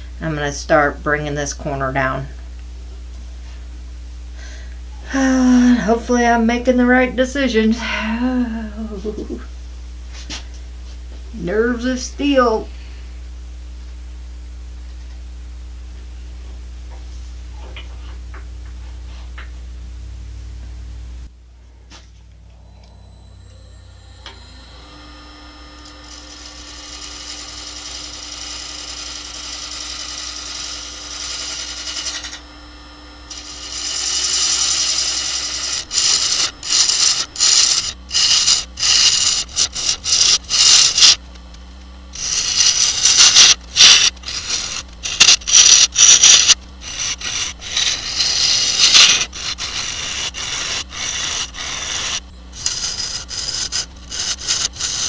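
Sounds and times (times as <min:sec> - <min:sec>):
lathe humming: 0:21.9 - 0:55.0
gouge cutting wood: 0:25.9 - 0:32.4, 0:33.3 - 0:41.3, 0:42.2 - 0:55.0.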